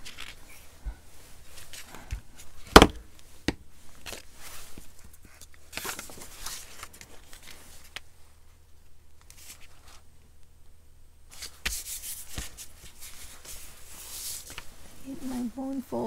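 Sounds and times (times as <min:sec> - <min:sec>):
paper rustling and sliding: 0:00.0 - 0:08.1, 0:09.2 - 0:10.1, 0:11.3 - 0:15.5.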